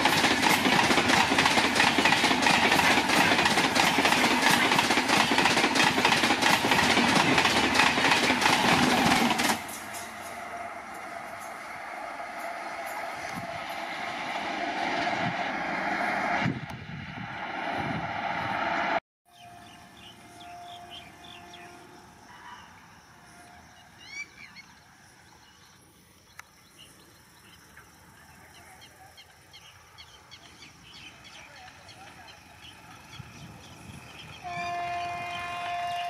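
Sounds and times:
train wheels rushing on rails: 0.0 - 21.9, 29.8 - 36.0
birds chirping: 19.3 - 22.0.

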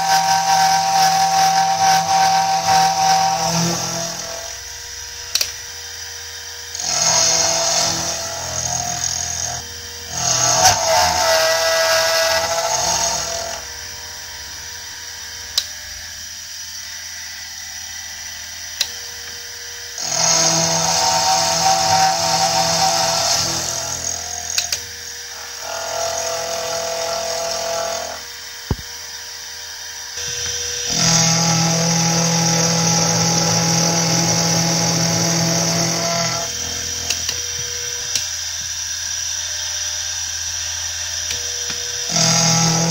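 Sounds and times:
end mill cutting metal: 0.0 - 5.5, 6.6 - 14.8, 19.9 - 28.9, 30.2 - 38.8, 40.8 - 42.9.

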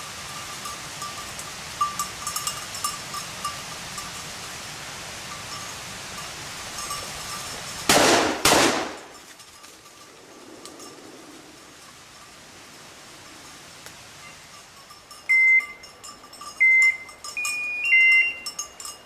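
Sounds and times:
dog collar bell jingling: 0.0 - 4.3, 5.3 - 7.9, 9.0 - 12.4, 14.4 - 19.0
shotgun shots: 7.9 - 9.1.

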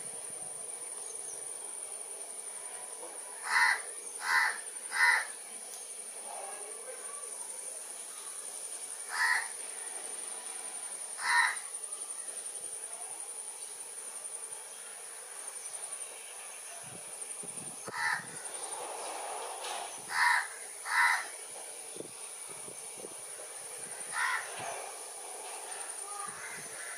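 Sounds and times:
high-pitched insect trill: 0.0 - 26.9
harsh bird calls: 3.4 - 5.4, 17.8 - 21.4, 23.9 - 26.9.

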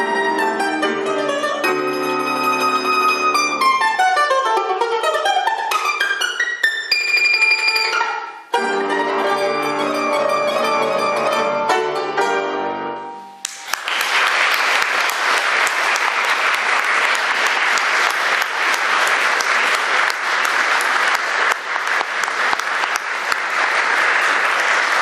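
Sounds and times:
audience applause: 13.4 - 25.0.

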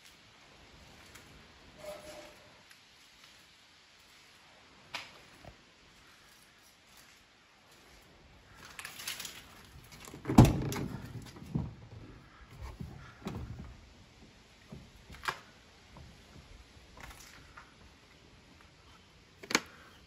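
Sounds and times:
door handle rattle: 10.0 - 11.7.

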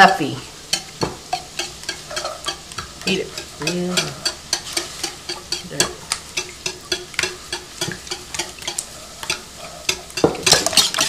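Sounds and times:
whisk clicking against plastic bowl: 0.7 - 11.0.

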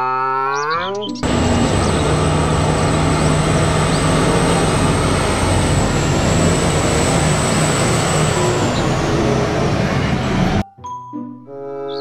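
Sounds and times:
loud rumbling: 1.2 - 10.6
thin high whine: 1.2 - 10.6
truck engine drone: 1.2 - 10.6.

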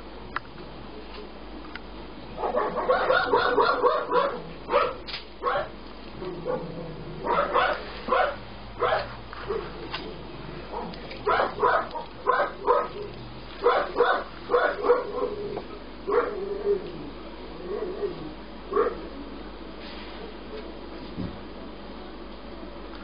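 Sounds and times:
puppy yipping and barking: 2.4 - 5.7, 7.3 - 9.7, 10.7 - 13.0, 13.6 - 15.4.

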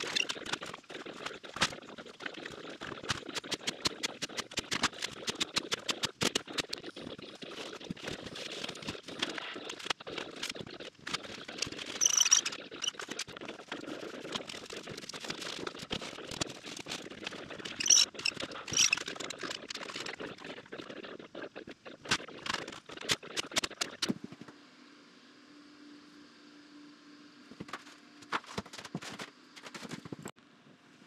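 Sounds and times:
faint steady hum: 0.0 - 31.0
sharp high-pitched bursts: 11.9 - 13.1.

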